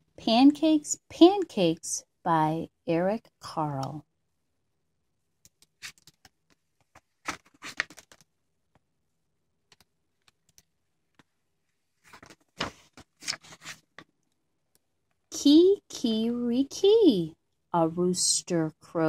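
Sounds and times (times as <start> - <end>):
book pages turning: 6.8 - 8.2, 12.0 - 14.2.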